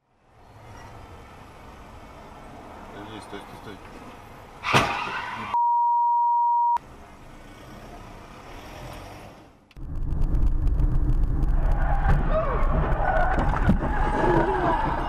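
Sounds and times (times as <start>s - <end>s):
road noise: 0.0s - 5.6s, 6.8s - 15.0s
censor bleep: 5.6s - 6.8s
road and wind rumble inside car: 6.8s - 15.0s.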